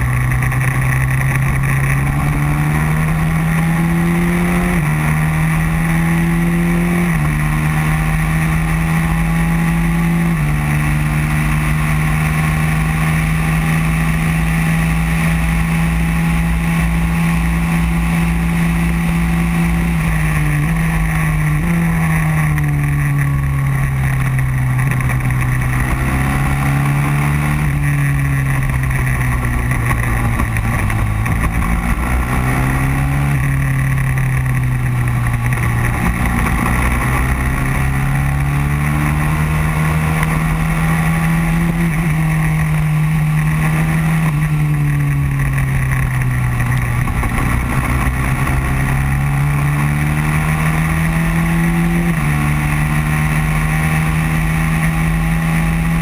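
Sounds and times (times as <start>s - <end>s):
kart engine at high revs: 0.0s - 56.0s.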